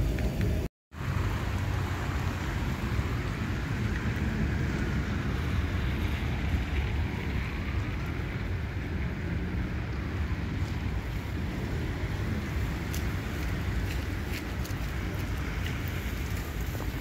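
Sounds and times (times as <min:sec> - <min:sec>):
low traffic rumble: 0:00.0 - 0:17.0
wind on microphone: 0:00.0 - 0:17.0.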